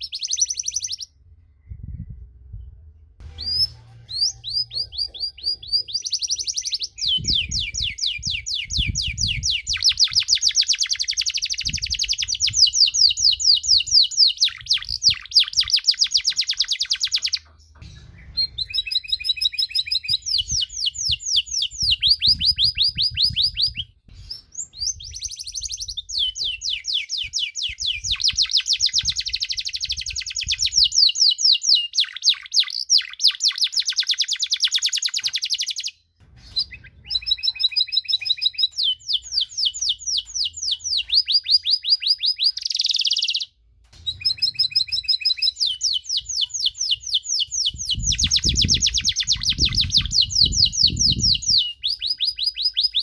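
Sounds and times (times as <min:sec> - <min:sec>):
canary singing trills: 0:00.0 - 0:01.2, 0:03.2 - 0:53.0
low rumble: 0:01.2 - 0:05.7, 0:17.8 - 0:19.0.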